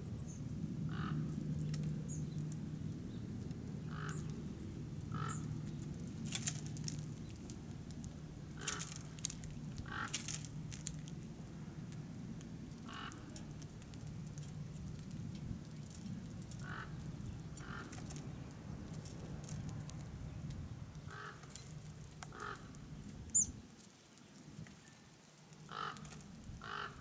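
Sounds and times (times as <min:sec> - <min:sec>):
low steady hum: 0:00.0 - 0:24.7
harsh animal calls: 0:03.9 - 0:04.3, 0:05.1 - 0:05.5, 0:09.8 - 0:10.3, 0:12.8 - 0:13.4, 0:16.6 - 0:17.0, 0:22.3 - 0:22.8, 0:25.7 - 0:27.0.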